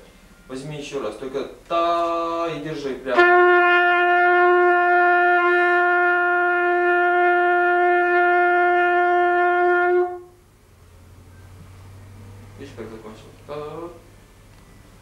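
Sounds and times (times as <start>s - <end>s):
trumpet long steady note: 3.1s - 10.5s.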